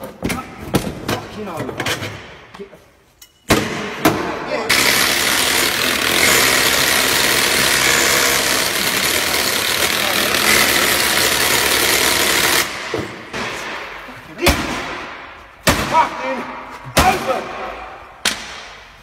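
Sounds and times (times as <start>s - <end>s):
power drill boring into steel: 4.7s - 12.7s.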